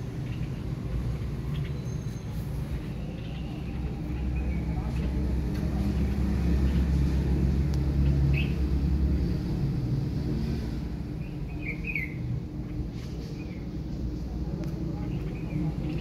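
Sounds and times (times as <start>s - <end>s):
motor vehicle rumble: 0.0s - 16.0s
bird chirps: 11.2s - 12.2s.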